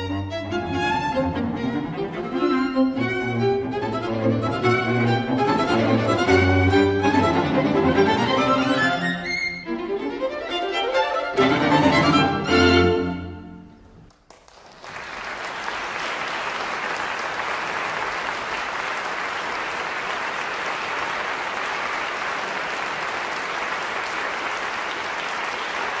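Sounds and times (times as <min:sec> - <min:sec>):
audience applauding: 0:14.0 - 0:26.0.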